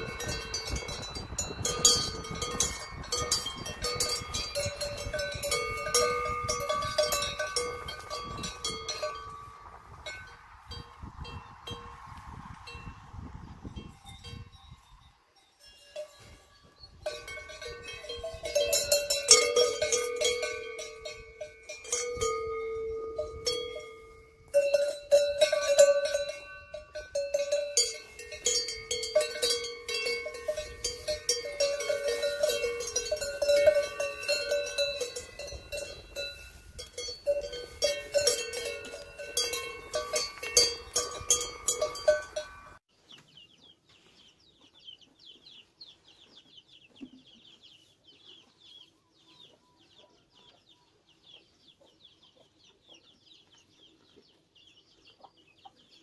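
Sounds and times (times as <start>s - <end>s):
cowbells clanking: 0.0s - 11.9s, 13.7s - 42.8s.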